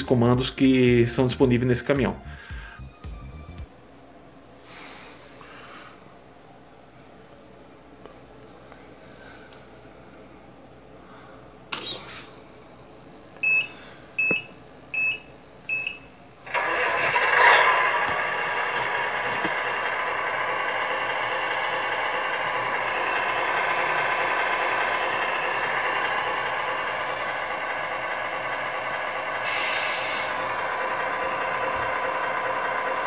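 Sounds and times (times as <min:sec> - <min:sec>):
simulated diesel engine idling: 0:12.5 - 0:33.0.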